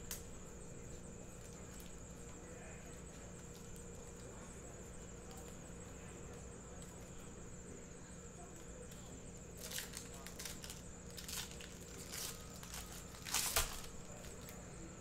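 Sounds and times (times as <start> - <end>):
foil card packs ticking: 0.0 - 7.6, 8.4 - 14.7.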